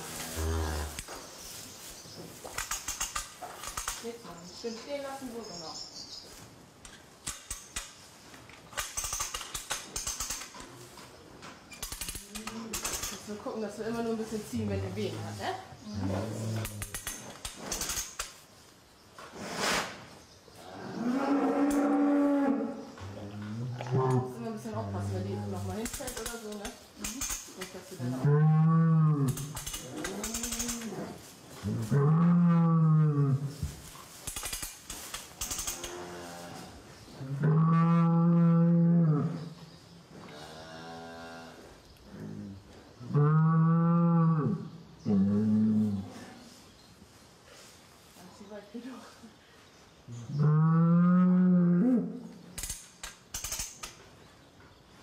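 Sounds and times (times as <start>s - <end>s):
sharp clicks: 2.5s - 4.1s, 6.8s - 10.7s, 11.7s - 13.2s, 16.6s - 18.4s, 25.8s - 27.8s, 29.3s - 31.0s, 34.2s - 36.1s, 52.6s - 54.0s
short hiss: 19.4s - 20.1s.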